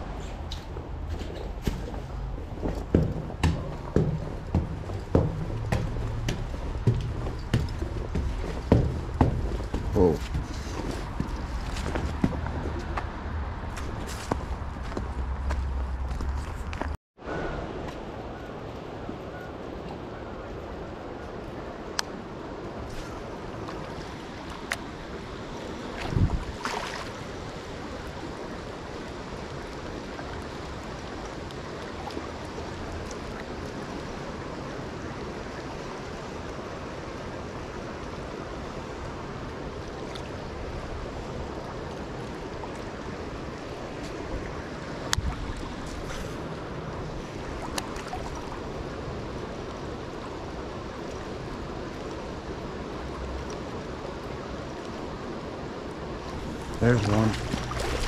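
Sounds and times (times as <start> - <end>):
stream water rushing: 0.0 - 16.2, 17.2 - 58.0
short knocks: 1.6 - 12.5.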